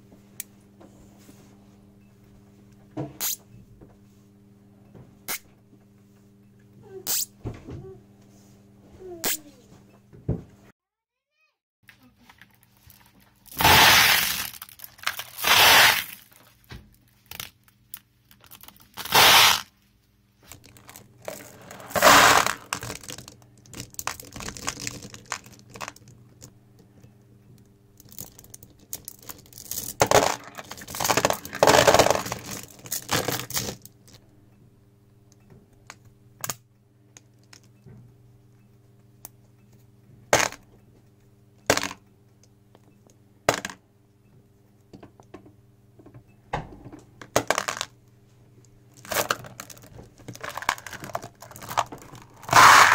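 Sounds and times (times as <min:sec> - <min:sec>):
steel balls clattering: 0:20.6 - 0:26.1, 0:28.0 - 0:33.9, 0:49.0 - 0:52.9.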